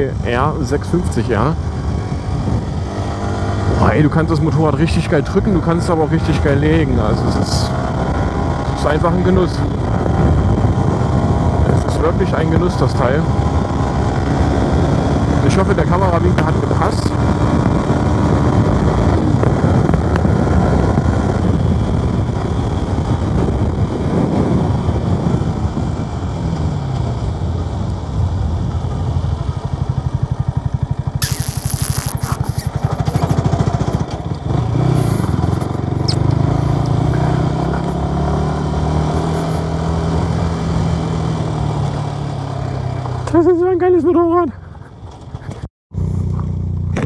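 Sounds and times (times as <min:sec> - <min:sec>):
wind noise: 0:00.0 - 0:29.5, 0:31.2 - 0:42.3
motorcycle engine running: 0:12.6 - 0:43.6, 0:44.6 - 0:47.0.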